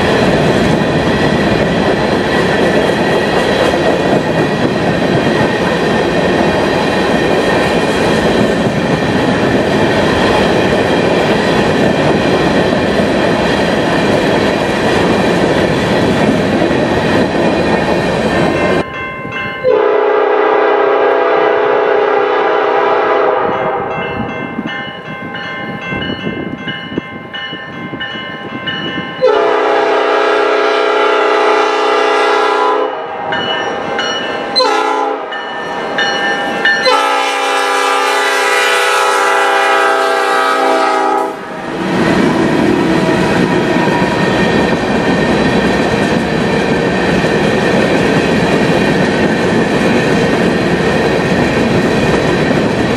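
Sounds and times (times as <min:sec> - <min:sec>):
train wheels on rails: 0:00.0 - 0:52.9
locomotive air horn blasts: 0:19.7 - 0:23.9, 0:29.2 - 0:33.4, 0:34.6 - 0:35.4, 0:36.8 - 0:41.6.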